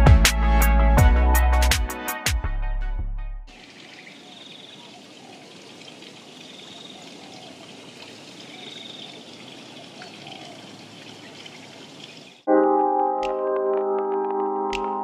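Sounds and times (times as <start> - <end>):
flowing water: 3.5 - 12.5
faint bird chirps: 3.6 - 12.4.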